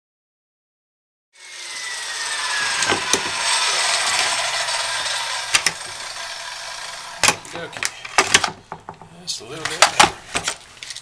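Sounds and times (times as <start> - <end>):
circular saw cutting wood: 1.4 - 8.6
sharp knocks: 2.8 - 3.4, 7.2 - 10.6.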